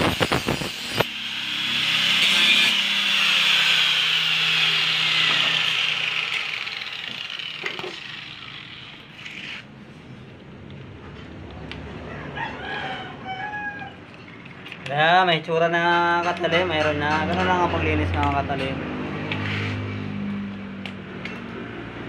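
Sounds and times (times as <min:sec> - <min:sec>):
angle grinder chattering on steel: 0:00.0 - 0:09.3
grinder motor winding down: 0:00.1 - 0:09.3.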